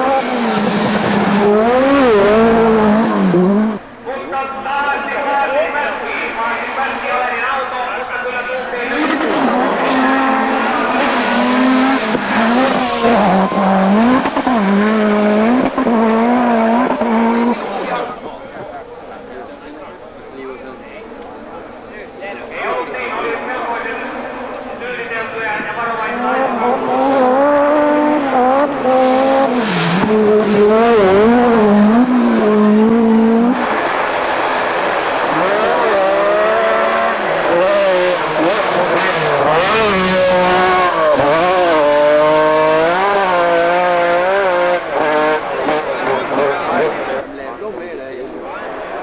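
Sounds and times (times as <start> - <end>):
rally car engine revving: 0.0 - 3.9, 8.8 - 18.3, 24.0 - 47.3.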